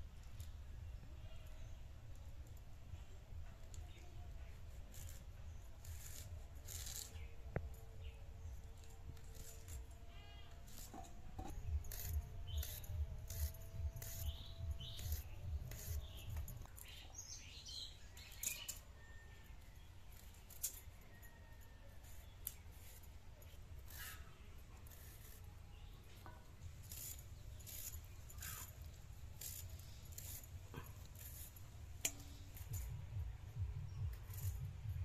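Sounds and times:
knives scraping: 4.9s - 19.1s, 20.1s - 33.0s.

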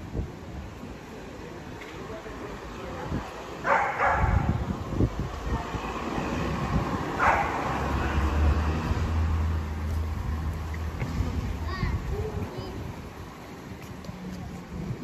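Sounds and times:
vehicle engine rumbling by: 4.4s - 13.0s.

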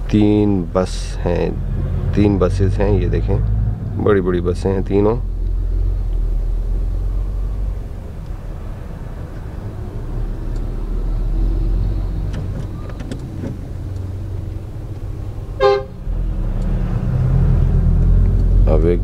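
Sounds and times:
low engine rumble: 0.0s - 19.0s
bus horn toot: 15.6s - 16.0s.

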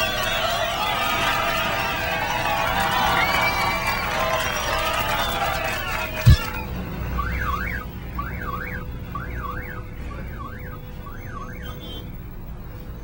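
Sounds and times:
car alarm warbling: 6.2s - 12.9s
heavy thud: 6.3s - 6.5s.

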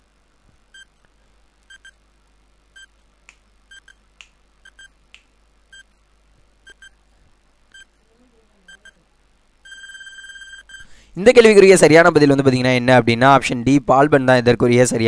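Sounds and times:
short high beeps: 9.6s - 10.9s.

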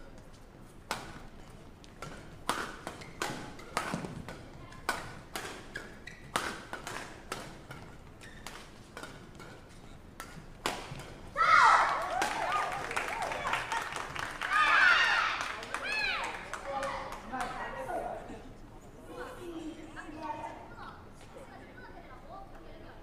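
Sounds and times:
court shoes squeaking: 0.1s - 11.3s
rackets hitting shuttlecock: 1.9s - 13.3s.

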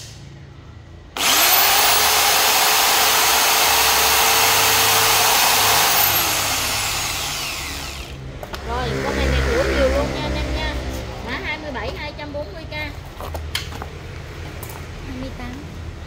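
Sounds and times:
electric chainsaw motor whining: 1.2s - 8.2s.

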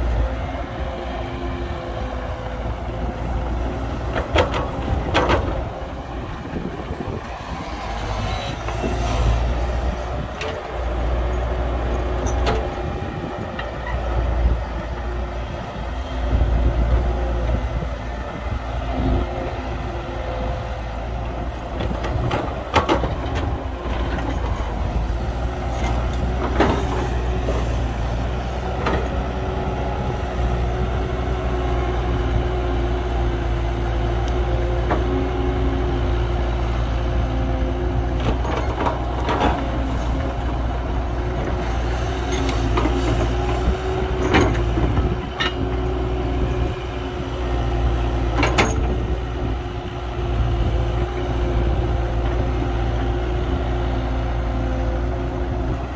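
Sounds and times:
diesel machinery running: 0.0s - 55.9s.

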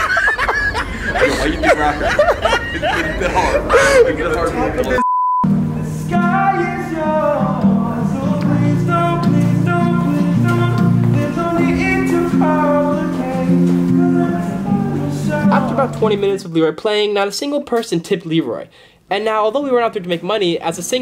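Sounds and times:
guitar music: 4.8s - 16.4s
test-tone beep: 5.0s - 5.6s.

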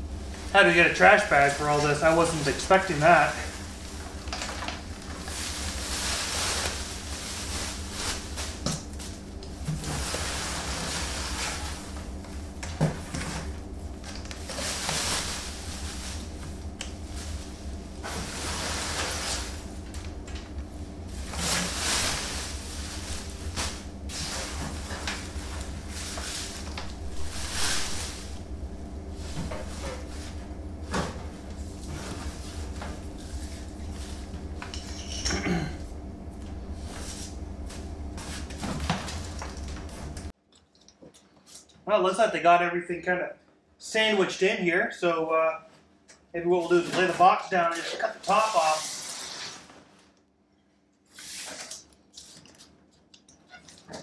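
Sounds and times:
steady low hum: 0.0s - 40.4s
shredded paper rustling: 0.2s - 34.6s, 46.6s - 50.1s.

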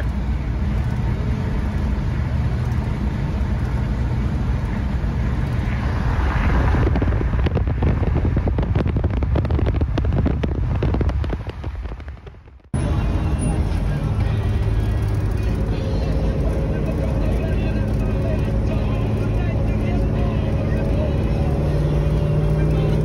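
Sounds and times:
car engine running: 0.0s - 23.0s
road noise: 0.0s - 23.0s
rapid crackle of sharp pops: 7.2s - 12.7s.

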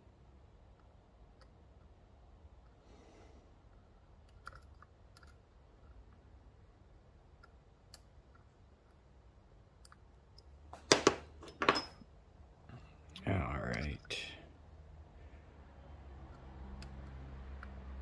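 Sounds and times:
faint metallic lock picking clicks: 4.2s - 5.4s.

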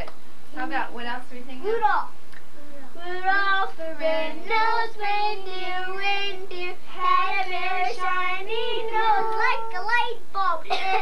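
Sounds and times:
child singing: 2.9s - 11.0s
woman singing: 3.0s - 9.8s.

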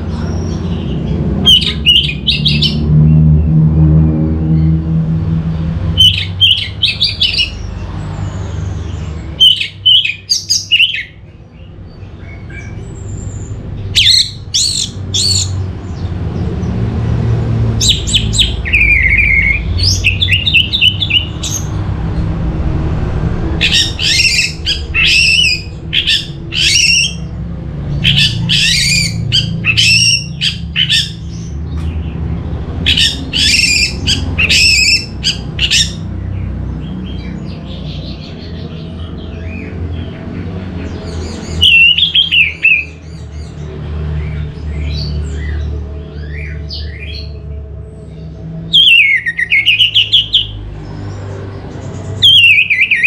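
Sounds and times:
steady low rumble: 11.3s - 41.5s.

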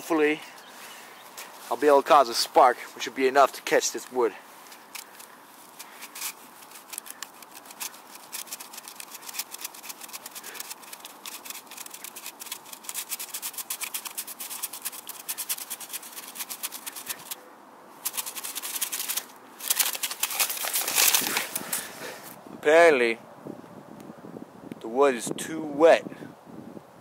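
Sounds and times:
person speaking: 0.0s - 0.6s, 1.6s - 5.2s
stick rasping on wood: 4.9s - 17.4s, 18.0s - 21.4s.

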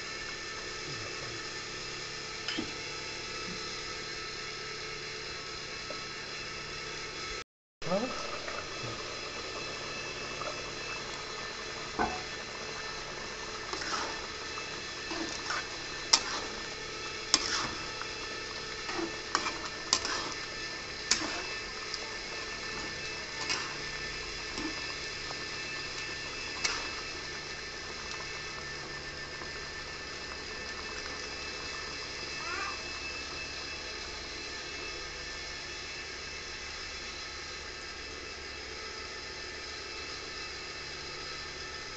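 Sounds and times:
curry bubbling: 7.9s - 32.4s
metal spatula scraping a pan: 13.7s - 14.2s, 15.1s - 17.9s, 18.8s - 22.0s, 22.7s - 23.9s, 26.6s - 27.0s.

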